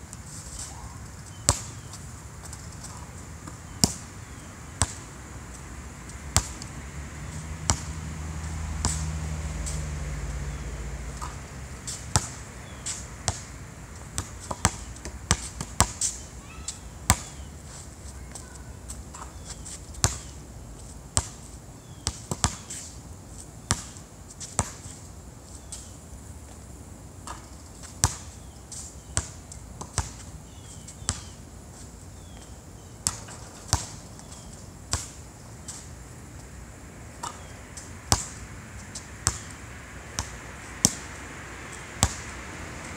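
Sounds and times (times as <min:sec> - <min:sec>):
basketball bouncing on hard court: 0:06.4 - 0:08.0, 0:22.0 - 0:22.6, 0:39.2 - 0:39.5, 0:40.2 - 0:41.1, 0:42.0 - 0:42.2.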